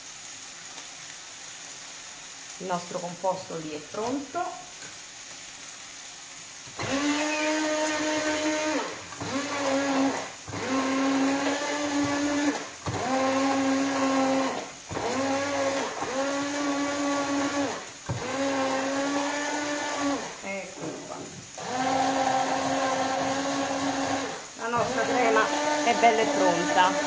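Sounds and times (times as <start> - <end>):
electric hand blender whining: 6.8 - 27.0.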